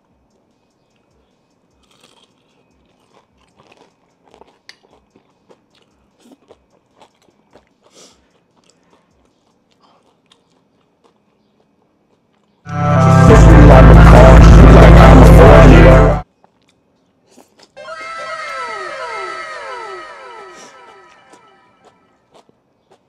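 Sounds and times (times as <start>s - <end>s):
chewing crunching: 1.0s - 12.7s, 16.2s - 17.8s, 20.7s - 23.0s.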